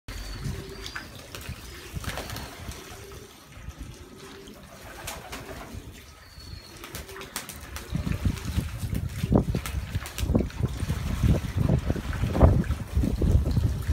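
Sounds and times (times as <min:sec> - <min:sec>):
pigeons cooing: 0:00.1 - 0:08.9
pigeons splashing in water: 0:00.1 - 0:13.9.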